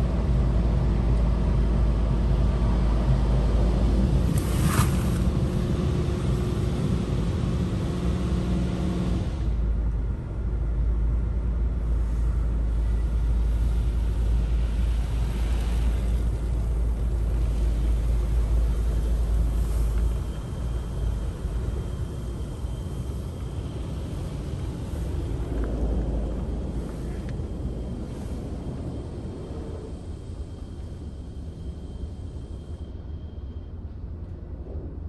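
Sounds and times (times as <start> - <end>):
machine hum: 0.0 - 35.0
water spray on car body: 4.3 - 5.2, 13.4 - 20.1.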